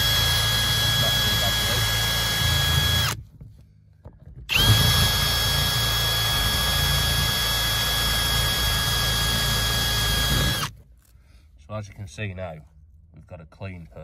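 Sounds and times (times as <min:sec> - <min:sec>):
cordless drill whining: 0:00.0 - 0:03.2, 0:04.5 - 0:10.8.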